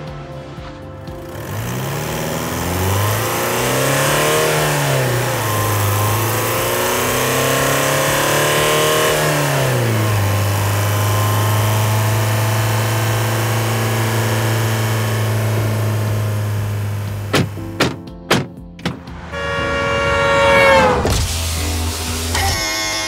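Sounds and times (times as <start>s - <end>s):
car engine revving and idling: 0.0s - 17.6s, 18.9s - 23.0s.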